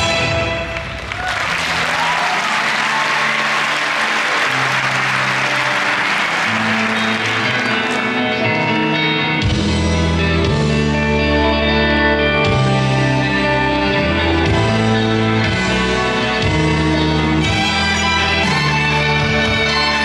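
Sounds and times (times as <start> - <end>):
show music: 0.0 - 20.0
audience applause: 0.8 - 8.8
deep bass line: 9.4 - 19.6.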